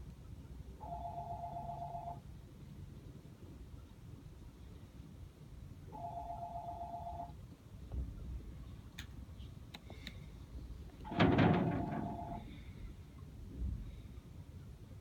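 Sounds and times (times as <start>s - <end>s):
low steady rumble: 0.0s - 15.0s
telephone warbling ring: 0.8s - 2.2s, 6.0s - 7.3s.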